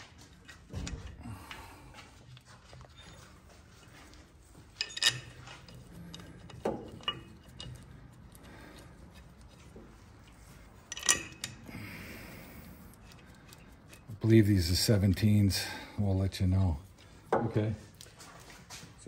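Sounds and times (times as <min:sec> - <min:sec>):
metal parts clinking and scraping: 0:02.3 - 0:15.7.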